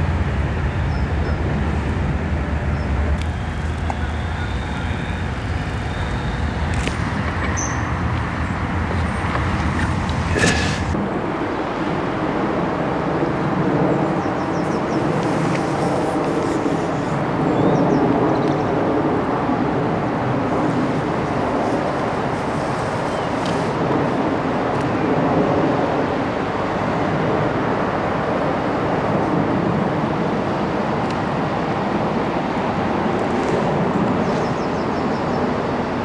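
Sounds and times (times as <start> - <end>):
steady rushing noise: 0.0 - 34.8.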